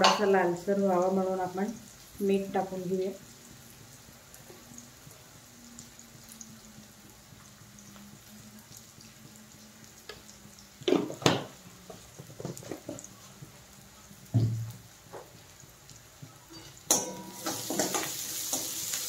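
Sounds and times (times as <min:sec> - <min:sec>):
onions sizzling in oil: 0:00.0 - 0:19.0.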